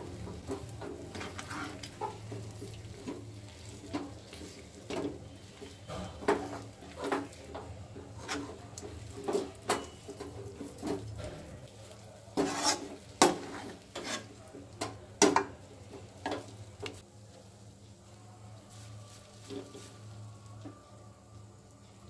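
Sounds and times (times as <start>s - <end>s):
ladle clanks: 0.2s - 11.6s
metal ladle scraping a pan: 0.4s - 11.6s, 12.3s - 15.5s.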